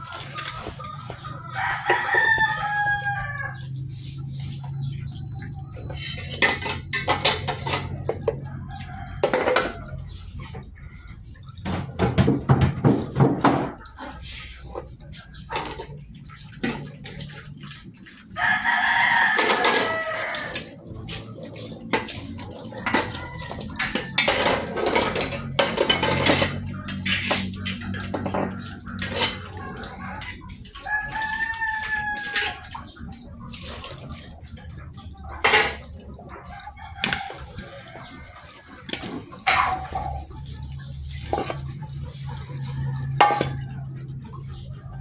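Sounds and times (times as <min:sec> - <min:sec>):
rooster crowing: 0:01.5 - 0:03.6, 0:18.4 - 0:20.7, 0:30.8 - 0:32.7
pots and lids clattering: 0:05.9 - 0:08.5, 0:09.2 - 0:10.7, 0:11.5 - 0:17.4, 0:19.1 - 0:21.2, 0:21.8 - 0:32.7, 0:35.0 - 0:36.2, 0:37.0 - 0:41.8, 0:43.0 - 0:44.5
tap water splashing: 0:15.4 - 0:35.9.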